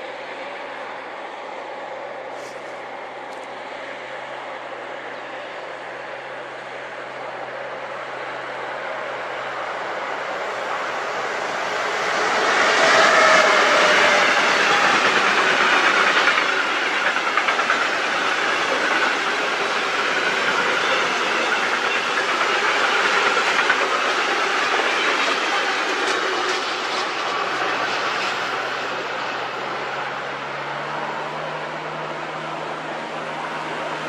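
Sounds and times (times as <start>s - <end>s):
train wheels rushing on rails: 0.0s - 34.0s
wheels clicking over rail joints: 12.7s - 27.3s.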